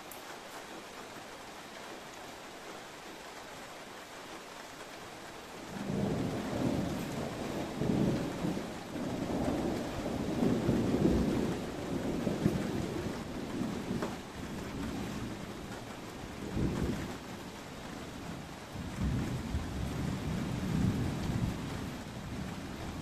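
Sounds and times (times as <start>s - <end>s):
steady rain: 0.0s - 23.0s
thunder rumbling: 5.6s - 23.0s.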